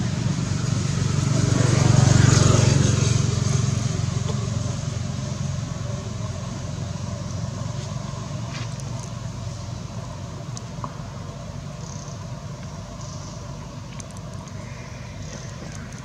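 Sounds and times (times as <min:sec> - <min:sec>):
motor vehicle driving past: 0:00.0 - 0:08.6.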